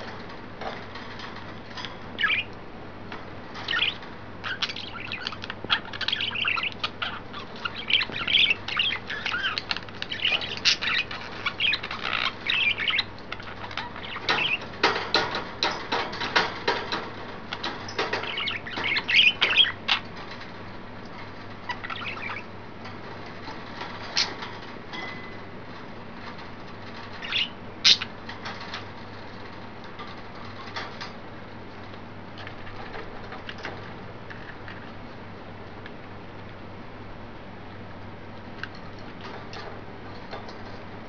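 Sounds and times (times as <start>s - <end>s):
budgerigars chattering and chirping: 2.2s - 2.5s, 3.6s - 20.4s, 21.2s - 22.5s, 23.8s - 24.5s, 26.9s - 28.8s.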